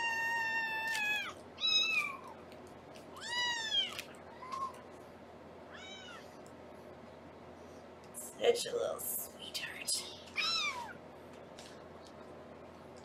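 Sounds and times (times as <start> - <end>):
kitten meowing: 0.0 - 2.4, 3.2 - 4.8, 5.7 - 6.2, 10.4 - 11.0.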